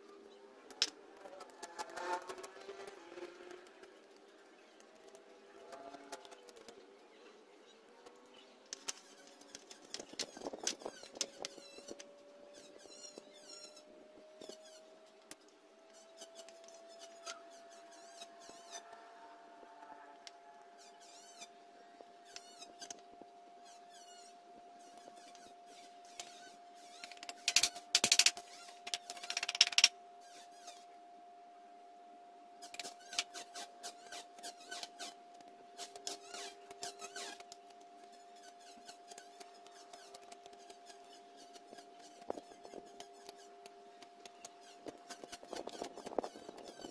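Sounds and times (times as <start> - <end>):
faint hum: 0.0 - 46.9
knife scraping bamboo strip: 16.0 - 18.8, 32.6 - 35.2, 35.8 - 43.7
bamboo strips clicking and tapping: 27.0 - 30.0, 32.6 - 38.2, 38.8 - 46.9.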